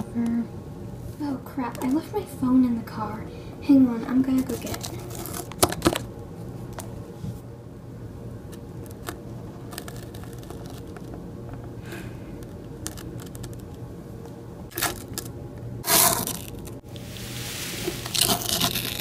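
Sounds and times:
steady low hum: 0.0 - 19.0
plastic toy clicking and scraping: 12.4 - 13.8
fabric rustle: 17.0 - 19.0.

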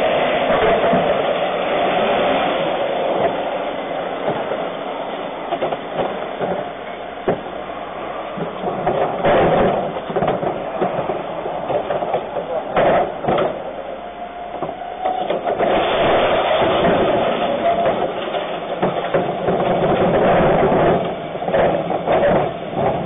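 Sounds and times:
garbage truck engine droning: 0.0 - 23.0
plastic bins knocking: 8.4 - 13.6.

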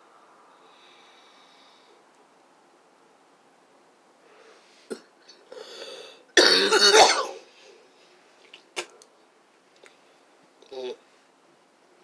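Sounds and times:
breathy intake: 4.4 - 6.3
woman coughing: 6.4 - 7.4.

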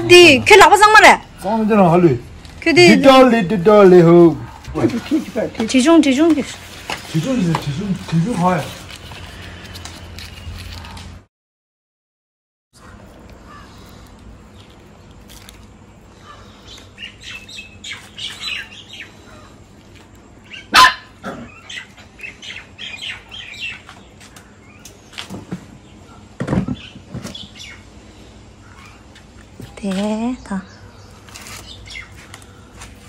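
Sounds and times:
dog barking: 4.3 - 4.8, 20.7 - 21.5
birds chirping: 12.8 - 33.0.

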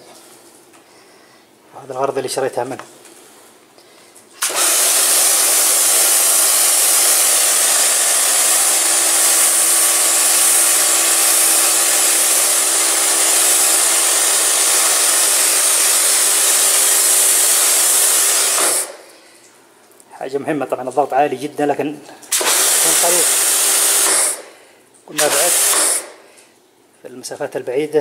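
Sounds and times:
water jet hissing on tiles: 4.4 - 19.5, 22.3 - 24.5, 25.1 - 26.2
pressure washer pump humming: 4.4 - 19.6, 22.3 - 26.4.

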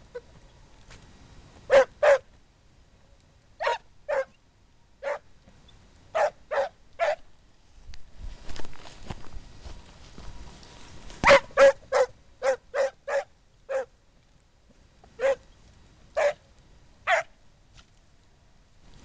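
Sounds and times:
hound barking: 1.7 - 2.3, 3.6 - 4.4, 5.0 - 5.3, 6.1 - 7.3, 11.2 - 14.0, 15.2 - 15.4, 16.2 - 16.4, 17.0 - 17.4.

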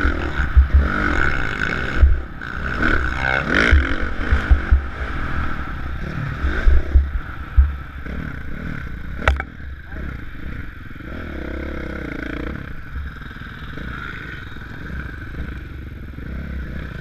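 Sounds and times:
dirt bike engine revving: 0.0 - 17.0
wind buffeting on microphone: 3.6 - 8.1.

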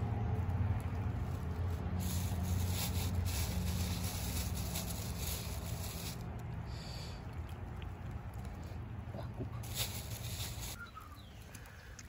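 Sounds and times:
low steady rumble: 0.0 - 12.0
plastic bag crinkling: 0.5 - 6.4, 9.6 - 10.8.

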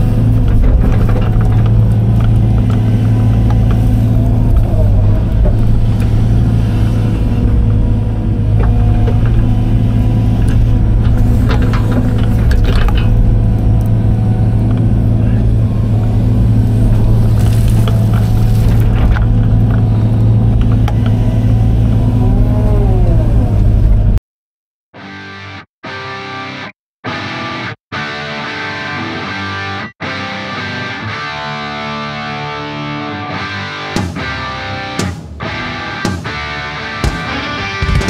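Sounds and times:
bucket clanking and scraping: 0.0 - 7.8, 8.6 - 13.9, 16.4 - 20.8
diesel engine running: 0.0 - 24.2.

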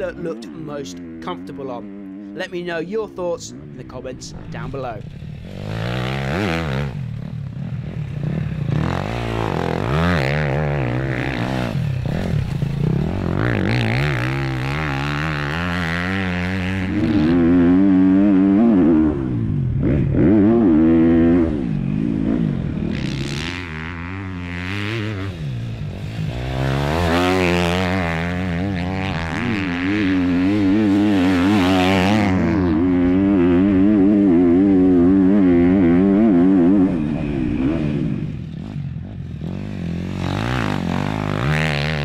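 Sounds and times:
motocross bike engine revving: 0.0 - 42.0.

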